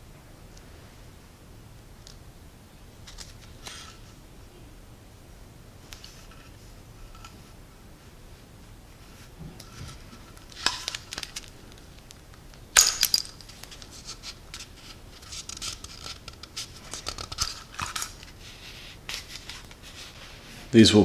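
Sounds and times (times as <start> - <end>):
tape crackling: 9.0 - 20.2
tape rustling: 9.0 - 20.5.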